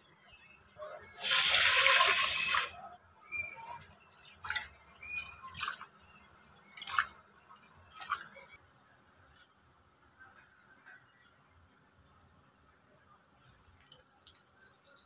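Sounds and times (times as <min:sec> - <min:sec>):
lentils sloshing in water bowl: 0:03.6 - 0:06.0.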